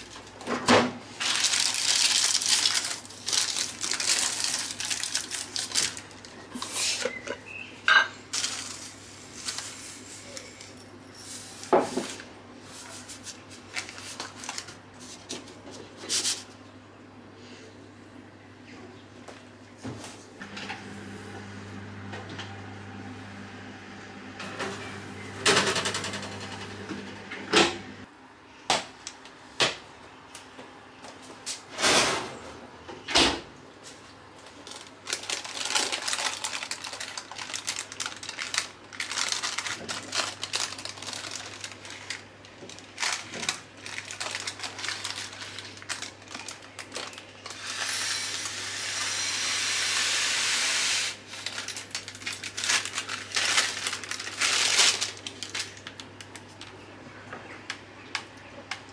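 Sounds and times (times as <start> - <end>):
baking paper crinkling: 0.0 - 7.3, 8.3 - 16.6, 33.8 - 48.0, 51.2 - 56.9.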